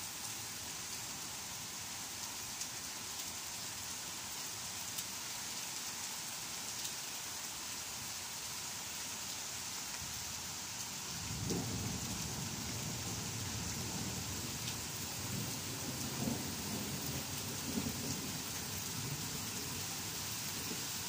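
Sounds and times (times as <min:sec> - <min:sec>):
heavy rain on leaves and pavement: 0:00.0 - 0:21.0
low thunder rumble: 0:11.2 - 0:19.3.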